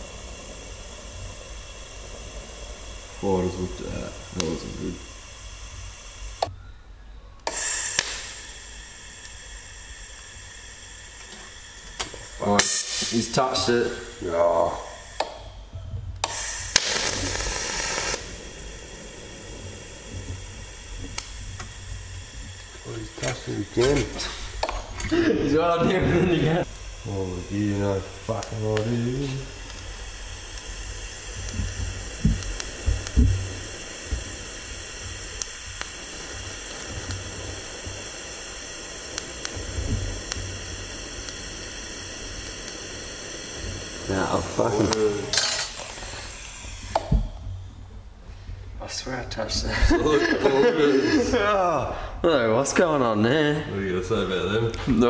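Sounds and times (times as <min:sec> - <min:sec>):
sharp ticks: 0:00.0 - 0:06.5, 0:07.4 - 0:09.4, 0:14.2 - 0:25.0, 0:26.6 - 0:47.4
welding arc hissing: 0:00.0 - 0:06.6, 0:07.4 - 0:55.0
low hum: 0:00.0 - 0:49.0
sharp clicks: 0:05.8 - 0:06.6, 0:07.4 - 0:09.4, 0:14.7 - 0:19.1, 0:20.2 - 0:25.1, 0:26.6 - 0:47.5.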